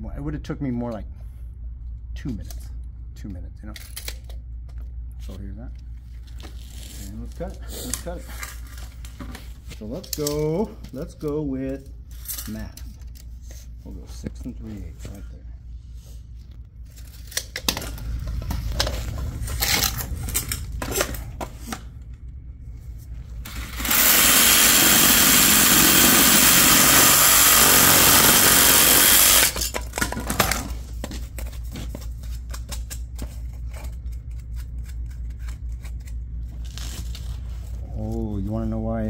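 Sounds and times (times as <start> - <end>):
clicks and rustles of pipe handling: 3.7 - 15.2
power saw cutting plastic pipe: 23.5 - 29.8.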